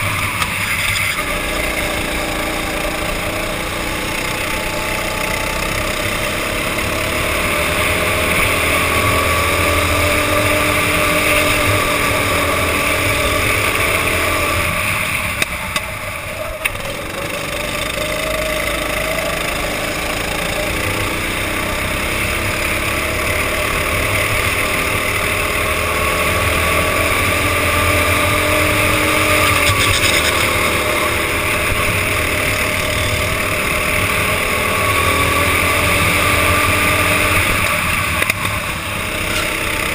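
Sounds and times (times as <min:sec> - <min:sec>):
go-kart engine racing: 0:00.0 - 0:39.9.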